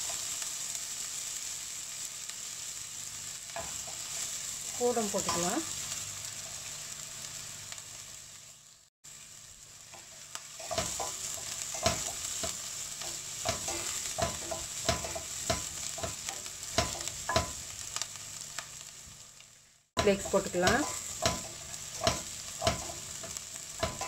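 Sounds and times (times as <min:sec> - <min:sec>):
onion sizzling in oil: 0:00.0 - 0:24.0.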